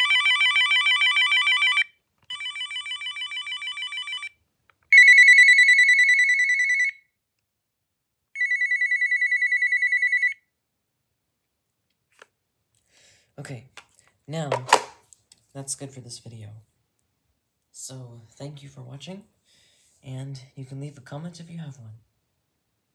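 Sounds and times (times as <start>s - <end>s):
cordless phone ringing: 0.0s - 7.0s, 8.4s - 10.4s.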